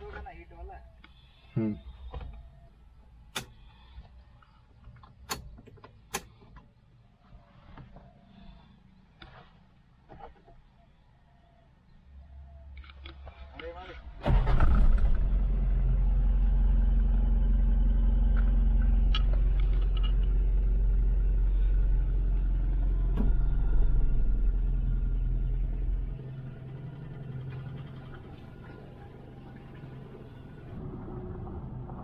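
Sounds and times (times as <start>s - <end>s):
car engine low rumble: 0.0s - 32.0s.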